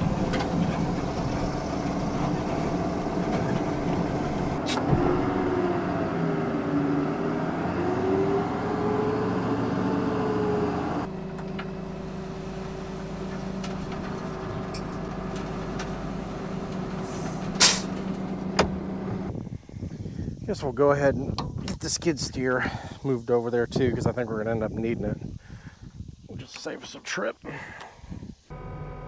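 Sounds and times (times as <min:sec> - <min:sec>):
diesel engine working: 0:00.0 - 0:19.4, 0:28.5 - 0:29.0
sharp hiss of air: 0:17.0 - 0:17.9.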